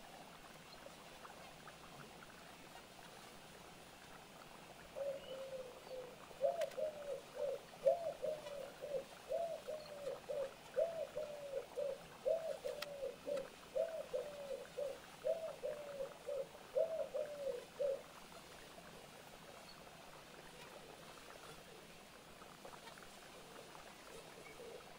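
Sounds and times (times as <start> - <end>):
dove cooing: 4.9 - 18.2, 20.3 - 24.9.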